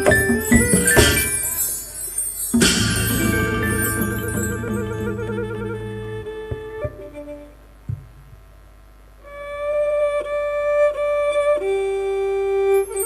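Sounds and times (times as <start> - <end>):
sharp knocks: 2.6 - 7.2
folk ensemble music: 2.6 - 7.6
instrument playing long held notes: 2.7 - 7.6.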